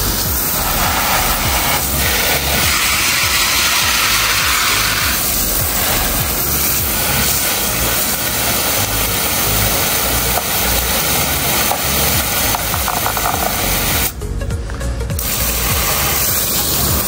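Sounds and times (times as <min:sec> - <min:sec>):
hose spray hissing on plastic: 0:00.0 - 0:14.2, 0:15.1 - 0:17.0.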